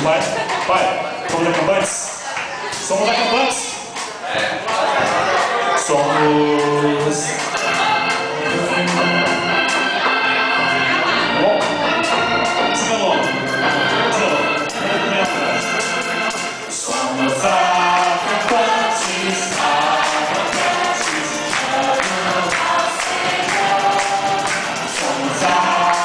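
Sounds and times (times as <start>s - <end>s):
guitar: 0.0s - 26.0s
steady beat: 3.8s - 26.0s
violins: 4.7s - 26.0s
electric organ: 4.8s - 26.0s
group singing worship song: 16.0s - 26.0s.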